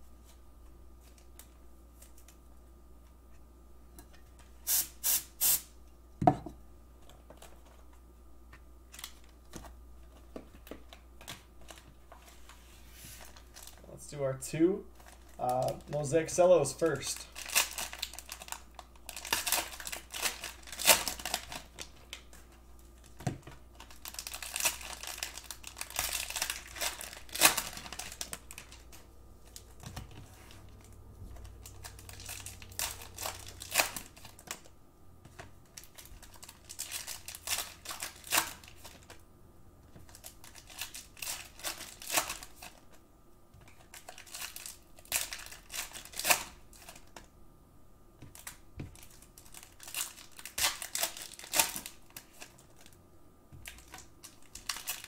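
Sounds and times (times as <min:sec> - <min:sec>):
cellophane wrappers crinkling and tearing: 0:08.9 - 0:14.0, 0:14.9 - 0:39.2, 0:39.9 - 0:43.0, 0:43.6 - 0:47.3, 0:48.2 - 0:53.0, 0:53.6 - 0:55.0.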